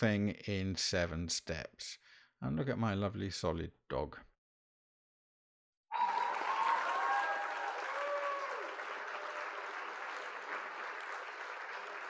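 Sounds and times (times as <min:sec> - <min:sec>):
voices whooping: 0:05.9 - 0:09.5
crowd clapping: 0:05.9 - 0:12.0.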